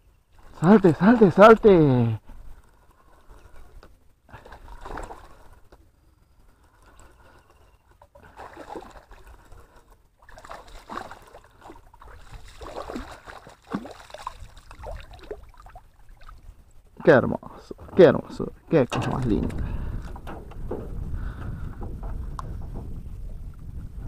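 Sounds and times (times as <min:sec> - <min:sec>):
fish splashing at water surface: 0:10.2 - 0:16.4.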